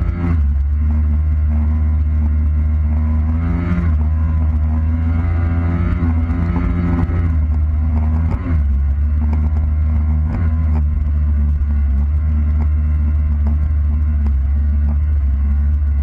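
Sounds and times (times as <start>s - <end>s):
jet ski engine running: 0.0s - 16.0s.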